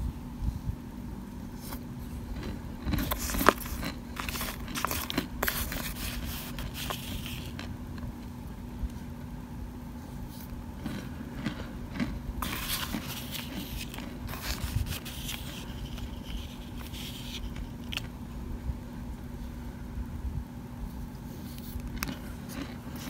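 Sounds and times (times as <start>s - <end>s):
faint steady hum: 0.0s - 23.0s
plastic spoon scraping crunchy powder: 1.6s - 7.7s, 10.2s - 18.2s, 21.3s - 23.0s.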